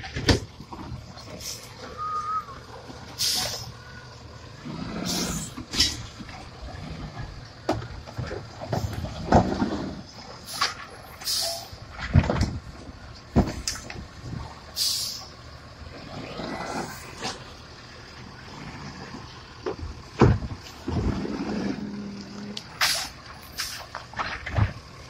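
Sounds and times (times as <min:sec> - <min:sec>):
trash carts knocking and banging: 0:00.0 - 0:15.3, 0:15.9 - 0:25.0
diesel engine running: 0:00.0 - 0:25.0
air hissing: 0:03.2 - 0:03.8, 0:14.8 - 0:15.3.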